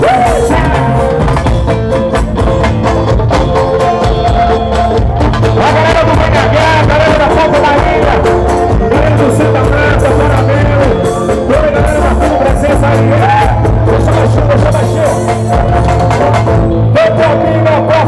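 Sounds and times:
person singing: 0.0 - 1.6
steady drum beat: 0.0 - 17.4
electric guitar: 0.0 - 18.0
live band playing: 0.0 - 18.0.

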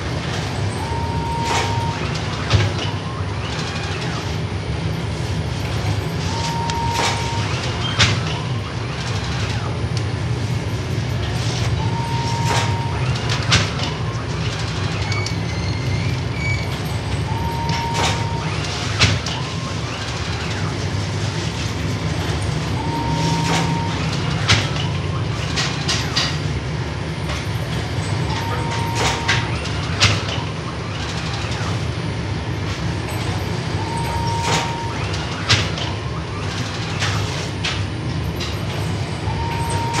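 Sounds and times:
bakery machinery rumble: 0.0 - 40.0
short high beep: 17.4 - 18.5, 22.8 - 24.1, 33.8 - 35.0.

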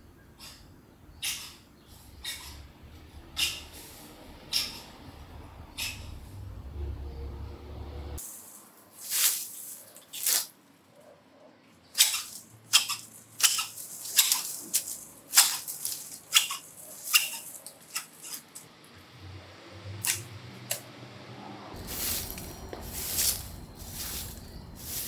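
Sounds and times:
hedge shears snipping branches: 8.3 - 10.6, 11.9 - 18.7, 20.0 - 20.8.

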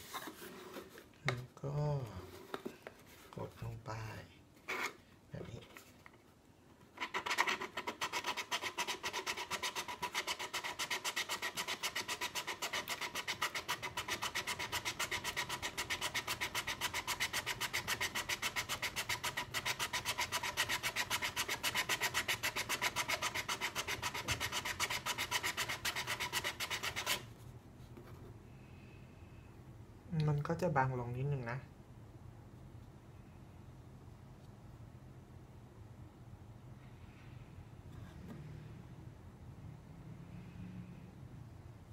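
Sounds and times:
hand file rasping: 7.0 - 27.3.

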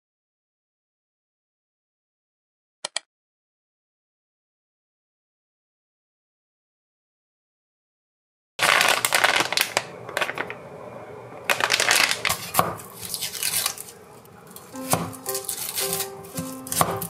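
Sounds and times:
plastic packet crinkling and tearing: 8.6 - 10.6, 11.5 - 17.0
light background music: 14.4 - 17.0
knife chopping on wooden board: 14.8 - 17.0.

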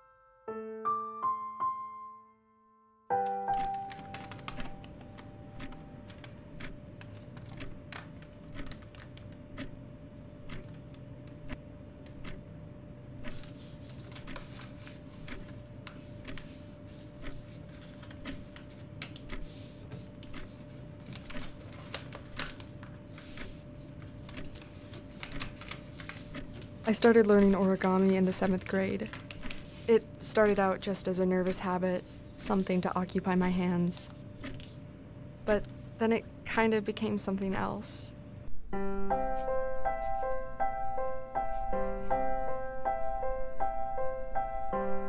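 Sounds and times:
room hum with faint tone: 3.5 - 44.8.

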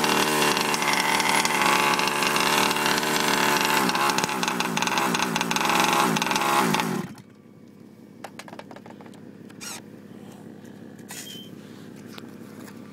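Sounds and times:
small two-stroke engine revving: 0.0 - 7.2.

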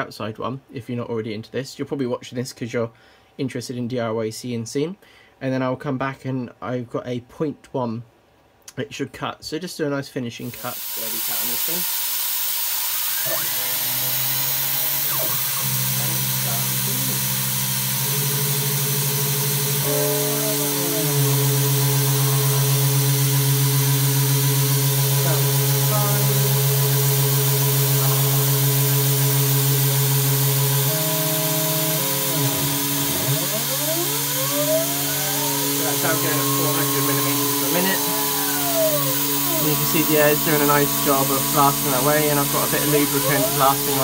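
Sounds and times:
router machining hum: 10.5 - 44.0.

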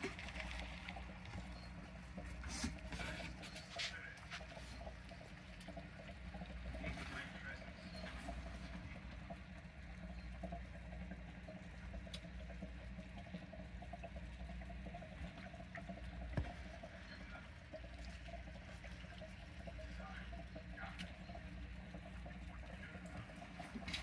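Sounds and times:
water trickling: 0.0 - 24.0.

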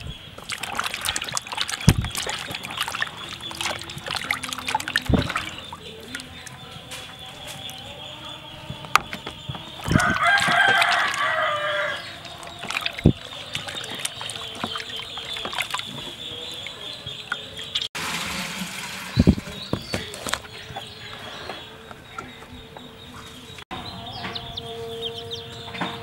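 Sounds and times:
water splashing in a basin: 0.0 - 7.8, 8.8 - 20.9
rooster crowing: 9.8 - 12.2.

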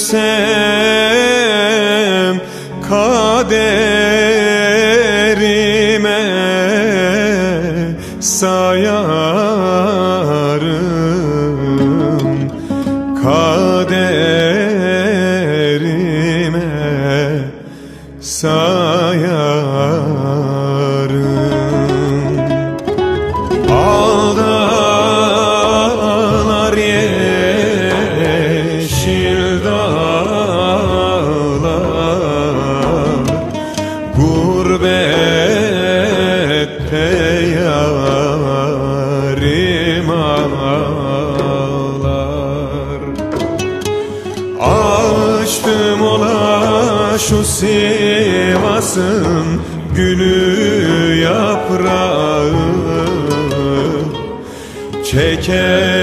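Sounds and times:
slow ornamented melody: 0.0 - 56.0
ornamented melody over drone: 23.4 - 30.7.

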